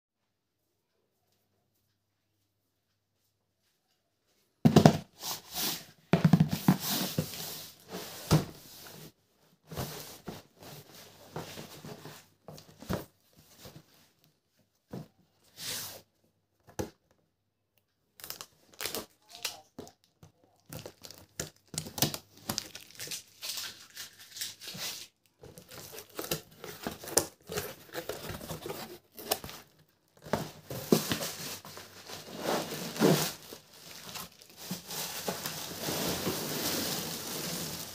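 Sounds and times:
plastic wrapping crinkling: 18.2 - 37.9
cardboard scraping: 24.6 - 37.9.

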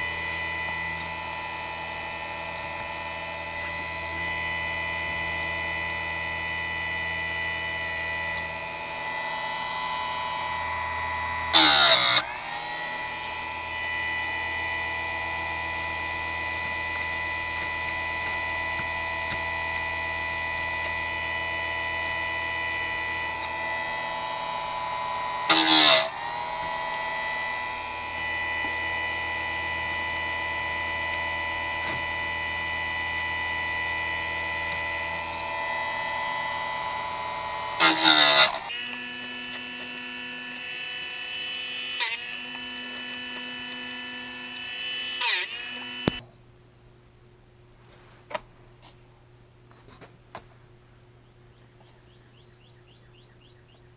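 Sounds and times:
harsh grinding on metal: 0.0 - 46.2
sharpener motor whining: 0.0 - 46.2.

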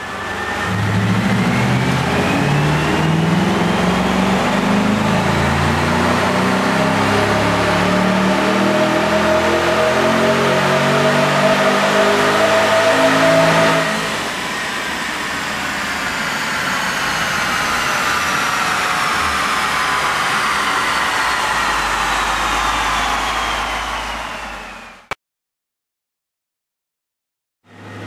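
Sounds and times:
car engine at full throttle: 0.0 - 25.2.

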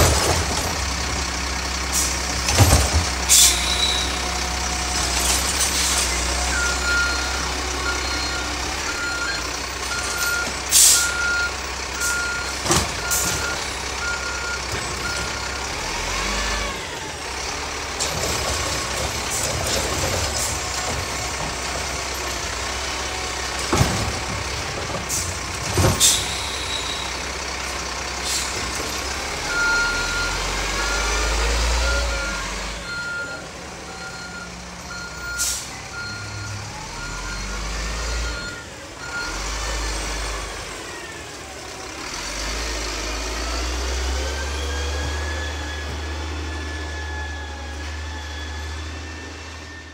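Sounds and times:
diesel truck engine running: 0.0 - 49.9
reversing alarm beeping: 6.3 - 16.4, 29.4 - 40.3, 44.1 - 49.9.

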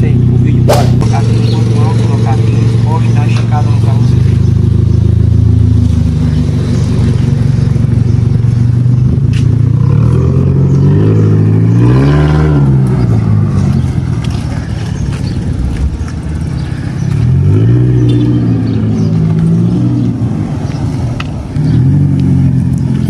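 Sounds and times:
raspy car engine accelerating: 9.8 - 15.0.

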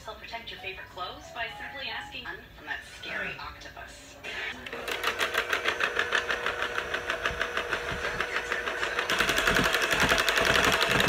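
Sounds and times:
electric hand mixer running: 4.2 - 11.0.

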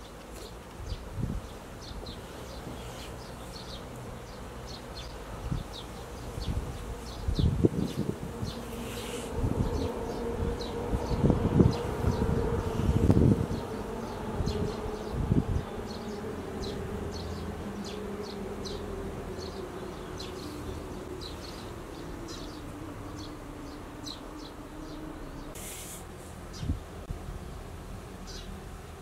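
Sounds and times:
insect buzzing: 6.2 - 15.3.

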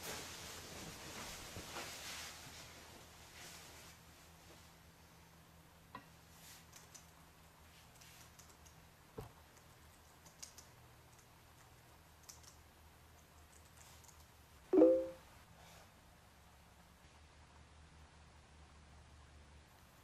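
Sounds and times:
laptop keyboard typing: 8.2 - 8.8, 9.5 - 14.3
chat message alert blip: 14.8 - 15.2.

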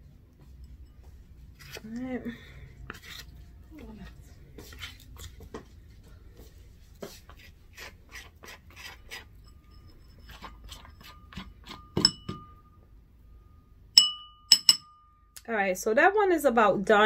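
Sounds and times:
metal spoon scraping gel: 1.5 - 2.0, 2.8 - 5.4, 7.1 - 12.0
spoon clinking on ceramic bowl: 9.1 - 12.8, 14.0 - 15.1.

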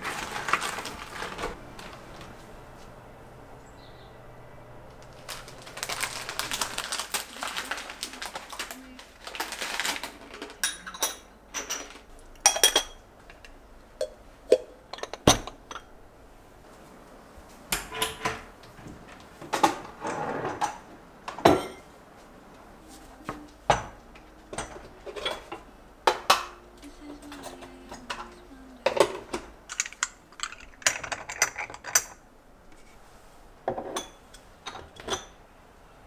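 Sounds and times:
dishes clinking and knocking: 10.6 - 13.0, 14.0 - 15.9, 19.4 - 21.9, 23.6 - 26.6, 27.2 - 32.2, 33.6 - 35.4.

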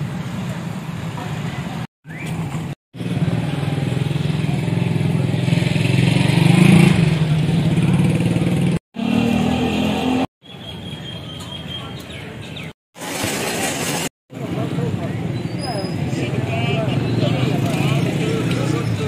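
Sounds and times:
motorcycle engines running: 0.0 - 10.3, 14.4 - 19.0.

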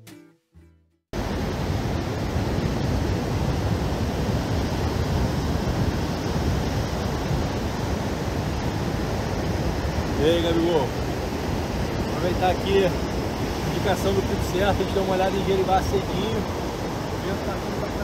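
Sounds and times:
guitar tune: 0.0 - 1.1
wind: 1.1 - 18.0
ocean surf breaking: 1.2 - 18.0.

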